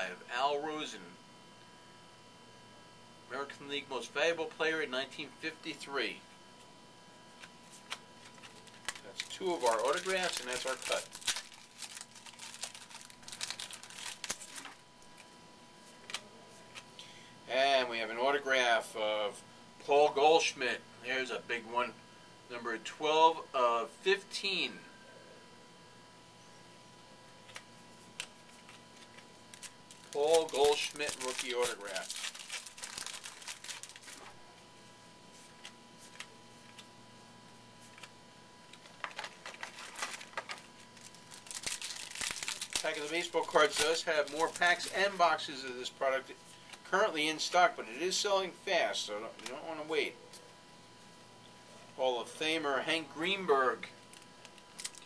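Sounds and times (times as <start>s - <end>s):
faint steady hum: 0.0s - 55.0s
cards clicking and rustling: 7.4s - 15.3s, 28.2s - 34.3s, 38.7s - 45.2s
pack wrappers crinkling: 7.8s - 15.3s, 28.2s - 34.4s, 38.7s - 45.2s, 54.1s - 55.0s.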